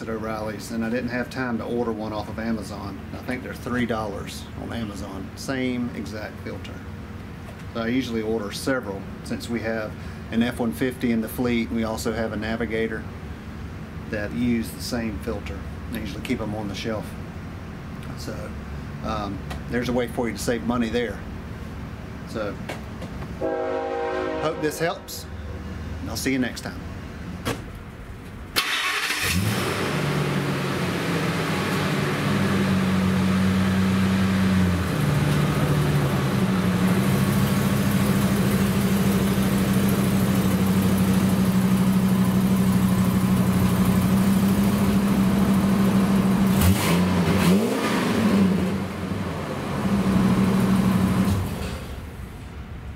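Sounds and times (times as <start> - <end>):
truck engine starting and idling: 25.4 - 52.9.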